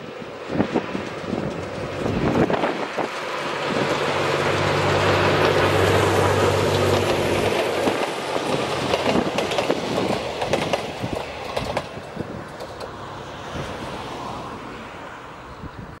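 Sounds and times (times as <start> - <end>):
train wheels clacking over rail joints: 0.3 - 14.0.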